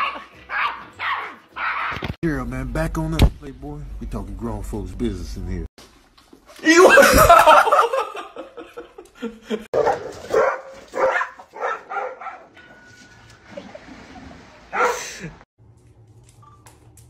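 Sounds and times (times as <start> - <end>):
dog barking: 0.0 - 2.0, 9.7 - 12.6, 14.7 - 15.1.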